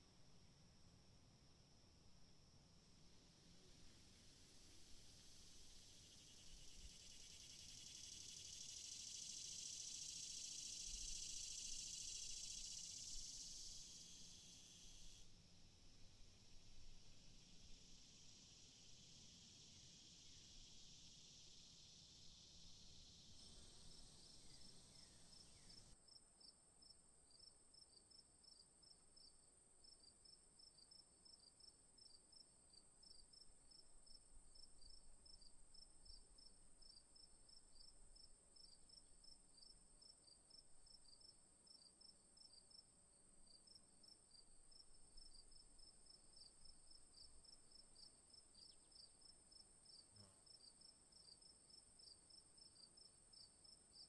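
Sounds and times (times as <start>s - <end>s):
soft hiss: 0.0s - 26.0s
crickets chirping: 0.1s - 26.2s, 26.8s - 54.0s.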